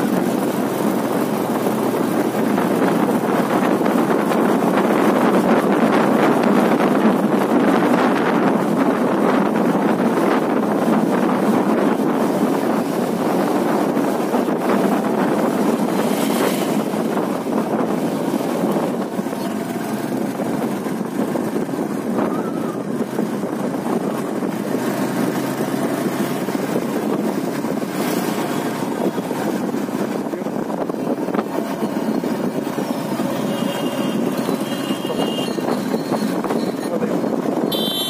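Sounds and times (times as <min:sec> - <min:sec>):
wind rushing over microphone: 0:00.0 - 0:38.0.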